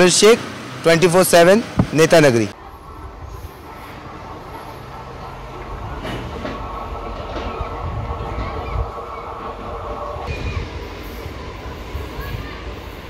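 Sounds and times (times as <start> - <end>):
train wheels rumbling on track: 1.8 - 13.0
track clacks: 4.2 - 10.3.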